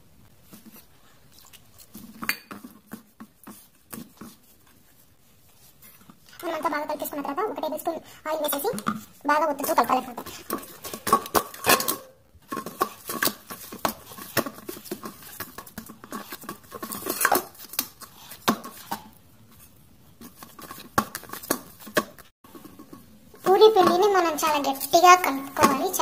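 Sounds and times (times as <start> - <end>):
utensils clinking against bowl: 10.2 - 17.8.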